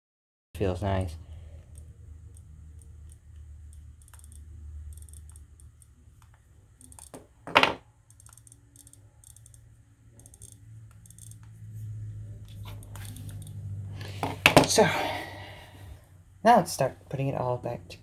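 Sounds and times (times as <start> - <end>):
click wheel ticking: 1.7 - 7.1, 8.1 - 11.5.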